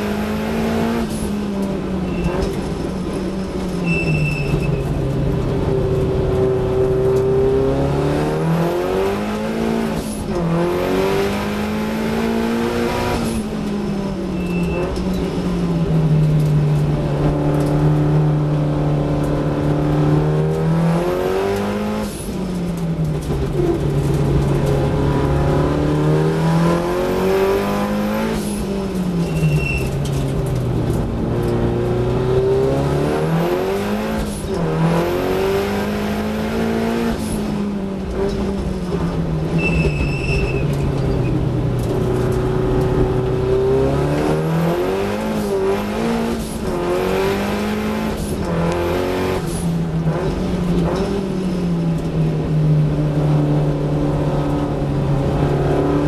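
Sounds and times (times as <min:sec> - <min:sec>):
brief high squeals: 0:03.8 - 0:04.9, 0:39.6 - 0:40.8
race car engine revving: 0:04.4 - 0:52.2.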